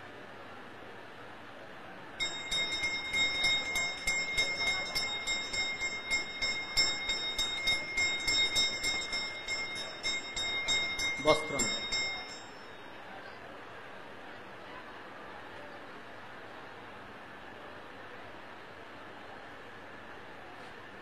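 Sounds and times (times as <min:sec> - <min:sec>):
hand bell ringing: 0:02.2 - 0:13.0.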